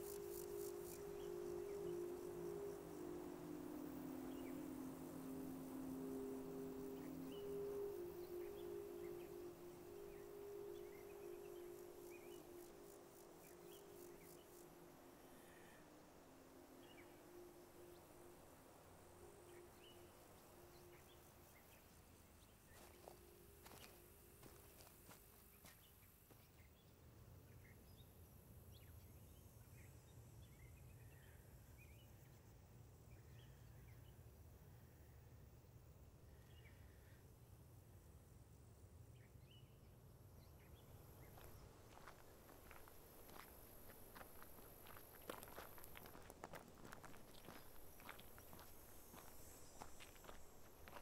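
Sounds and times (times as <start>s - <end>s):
low steady drone: 0.0s - 24.6s
steady low hum: 0.0s - 25.2s
pulsing insect chirr: 0.0s - 26.4s, 40.2s - 51.0s
faint bird chirps: 39.2s - 51.0s.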